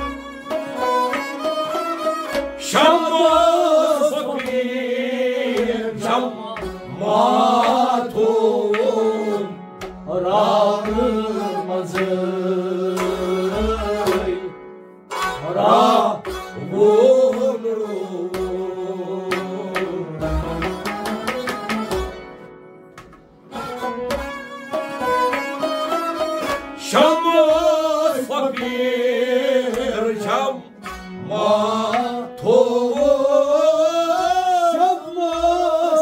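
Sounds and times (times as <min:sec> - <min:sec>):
bowed string instrument: 0:00.0 - 0:36.0
man singing: 0:02.6 - 0:14.6, 0:15.4 - 0:20.8, 0:26.8 - 0:36.0.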